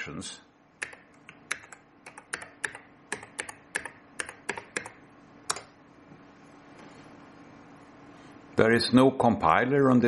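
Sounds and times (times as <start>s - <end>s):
computer keyboard key clicks: 0.8s - 4.9s.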